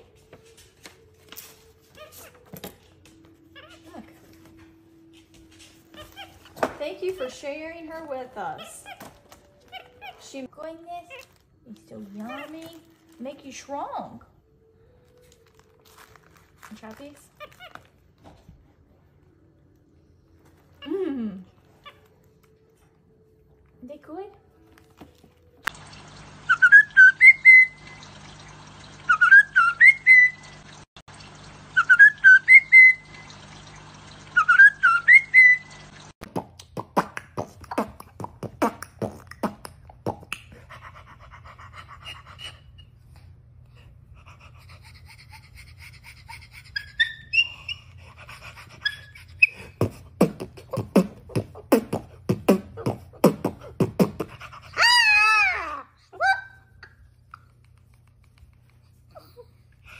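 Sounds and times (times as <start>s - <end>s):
mouth clicks: 36.2s - 40.7s.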